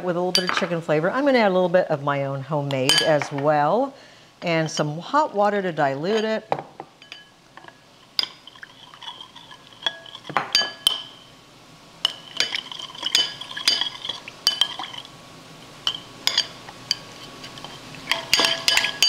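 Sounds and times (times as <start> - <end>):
spoon clinking against glass bowl: 2.9 - 3.2, 7.0 - 7.3, 8.2 - 11.3, 12.0 - 15.1, 15.8 - 19.0.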